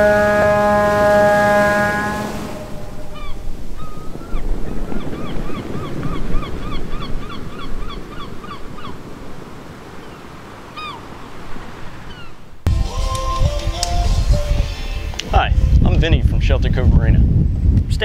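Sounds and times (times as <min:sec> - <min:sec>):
ship's horn: 0:00.0 - 0:03.8
waves: 0:00.0 - 0:12.7
bird squawking: 0:02.6 - 0:09.0, 0:10.0 - 0:11.0, 0:12.1 - 0:12.4.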